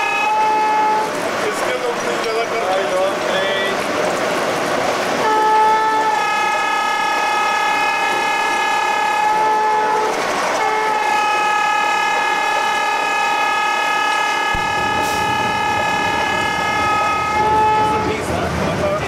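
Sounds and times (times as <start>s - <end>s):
train rumbling at speed: 0.0s - 19.0s
locomotive high-pitched shriek: 5.2s - 18.2s.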